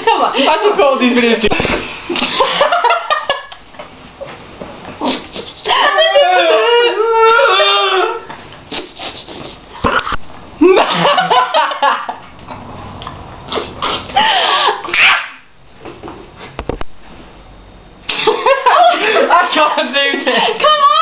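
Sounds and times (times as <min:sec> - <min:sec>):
woman and man laughing: 0:02.1 - 0:03.8, 0:05.4 - 0:08.3, 0:09.8 - 0:12.2, 0:14.0 - 0:15.0, 0:18.1 - 0:19.5, 0:20.1 - 0:21.0.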